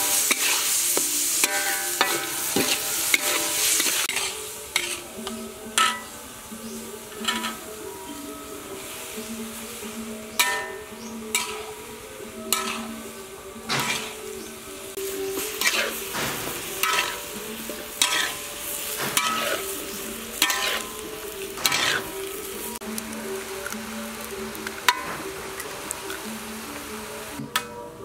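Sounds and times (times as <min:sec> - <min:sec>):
food sizzling: 0:00.0 - 0:27.5
metal spatula scraping wok: 0:00.0 - 0:27.8.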